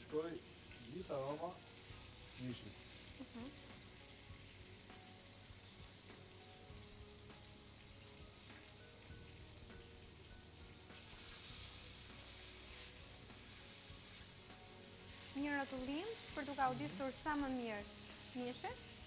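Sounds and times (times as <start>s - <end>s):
meat sizzling in a frying pan: 0.0s - 19.0s.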